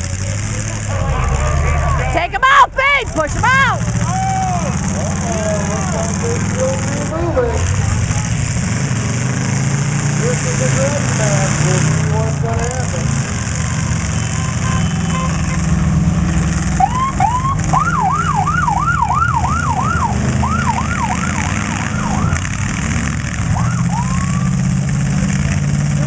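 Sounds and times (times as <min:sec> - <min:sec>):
low rumble of car engines: 0:00.0 - 0:26.0
siren yelping: 0:16.8 - 0:22.4, 0:23.5 - 0:24.6.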